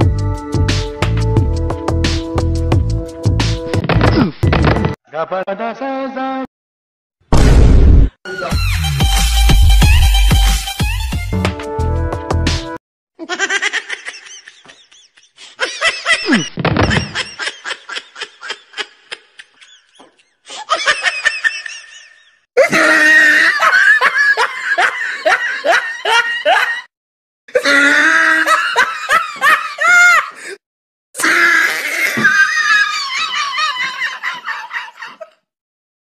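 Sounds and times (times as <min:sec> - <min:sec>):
loud rhythmic laughter: 0:13.2 - 0:26.9, 0:27.6 - 0:30.4, 0:32.2 - 0:35.4.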